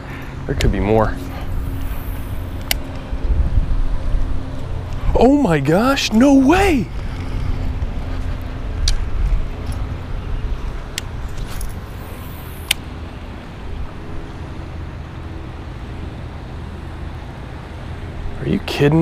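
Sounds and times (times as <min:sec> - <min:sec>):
wind rumble on microphone: 0:00.0 - 0:12.7
sharp clicks: 0:02.6 - 0:03.0.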